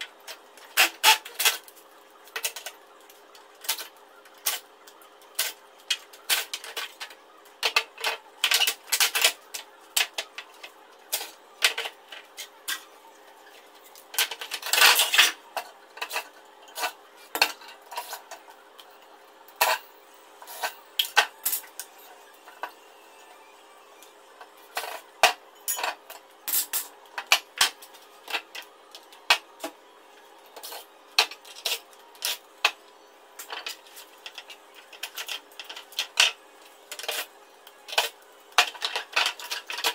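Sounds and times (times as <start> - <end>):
metal and plastic parts clattering: 37.9 - 39.9.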